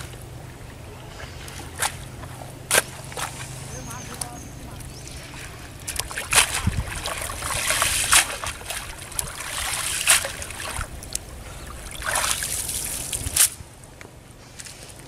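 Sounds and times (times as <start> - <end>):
net splashing in river water: 1.1 - 13.6.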